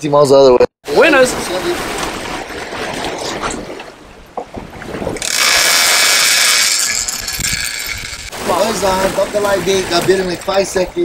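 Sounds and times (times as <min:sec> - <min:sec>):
boat wake and sea hiss: 0:00.9 - 0:04.4, 0:05.1 - 0:11.0
fishing reel clicker buzzing: 0:05.2 - 0:08.3.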